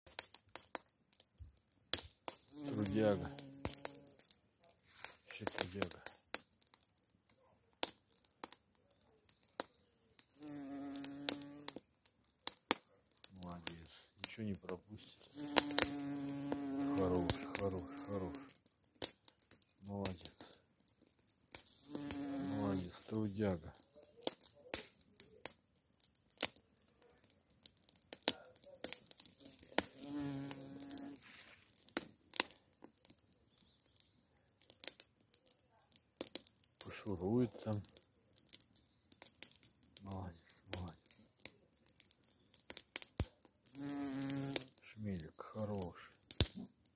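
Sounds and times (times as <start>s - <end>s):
bumblebee buzzing: 2.6s - 4.2s, 10.4s - 11.7s, 15.3s - 18.5s, 21.7s - 22.9s, 29.8s - 31.2s, 43.8s - 44.7s.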